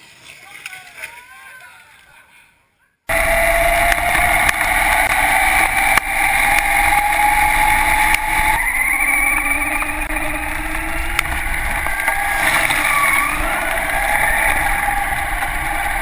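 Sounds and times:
toy car motor whining: 3.1 - 16.0
sharp clicks: 3.8 - 16.0.

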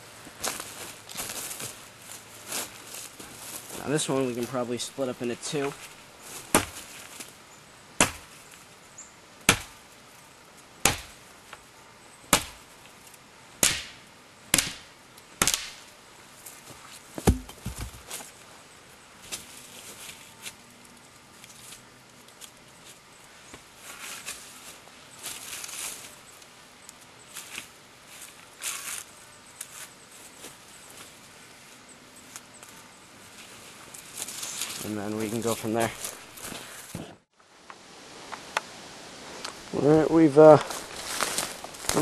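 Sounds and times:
axe chopping wood: 6.5 - 6.8, 8.0 - 8.3, 9.5 - 9.8, 10.8 - 11.2, 12.3 - 12.6, 13.6 - 15.8, 17.2 - 18.1
heavy knock with low thud: 17.2 - 18.0.

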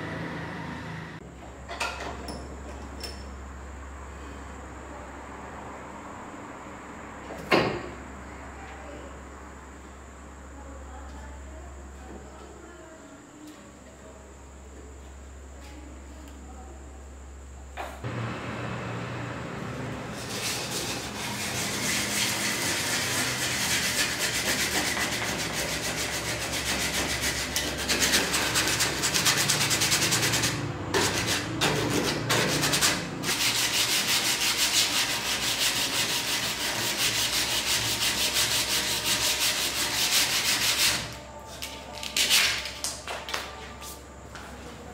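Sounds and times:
sandpaper rubbing on wood: 20.1 - 41.2.

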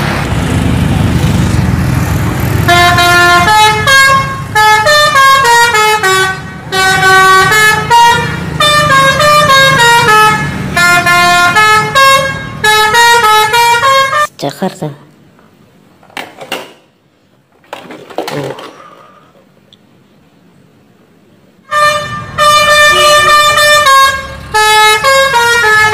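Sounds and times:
bus engine: 0.0 - 14.4, 16.8 - 25.9
street noise: 0.0 - 25.9
musical multi-tone air horn: 2.6 - 14.3, 21.7 - 25.9.

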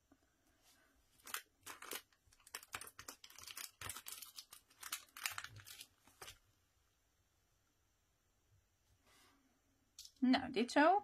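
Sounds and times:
plastic packaging crinkling: 1.2 - 6.4.

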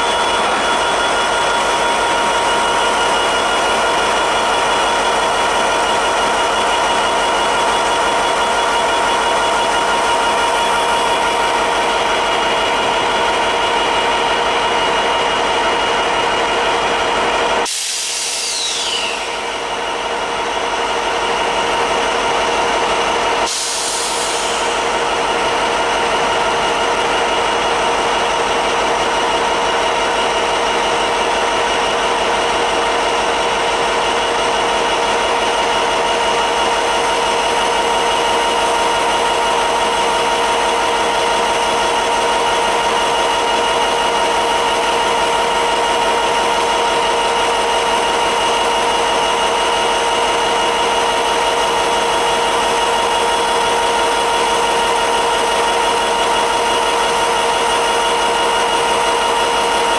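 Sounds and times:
constant mechanical whine: 0.0 - 59.9
diesel locomotive engine drone: 0.0 - 59.9
falling squeal: 18.3 - 19.7.

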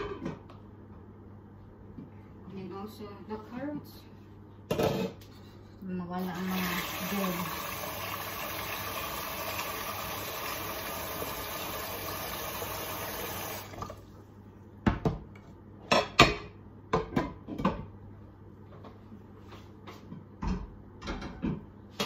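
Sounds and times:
tap water running into pot: 6.3 - 14.0.

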